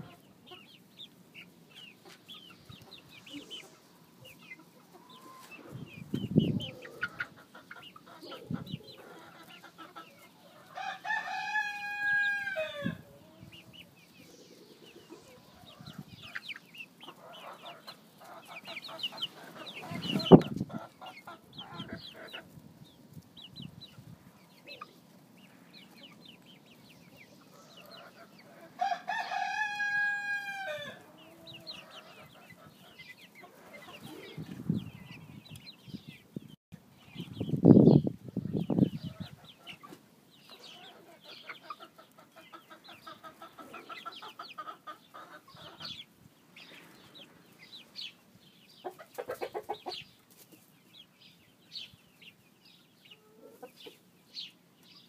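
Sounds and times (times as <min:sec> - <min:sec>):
chickens clucking and peeping: 0:00.0 - 0:55.0
cockerel crowing: 0:10.7 - 0:13.0, 0:28.8 - 0:31.1.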